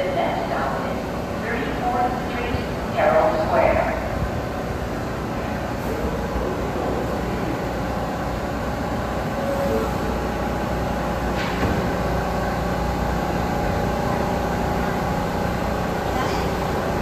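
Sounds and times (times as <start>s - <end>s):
subway train equipment hum: 0.0s - 17.0s
train doors closing knock: 11.2s - 12.1s.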